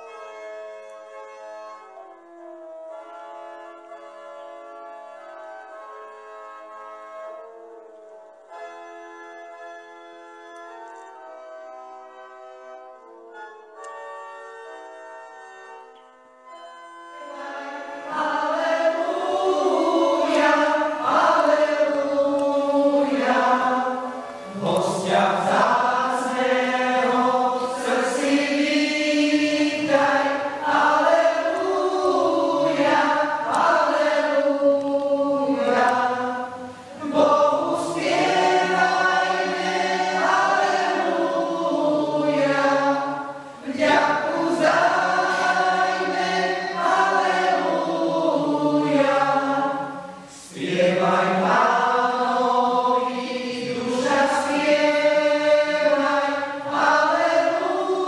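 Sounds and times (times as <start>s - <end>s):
mixed choir singing: 17.1s - 58.0s.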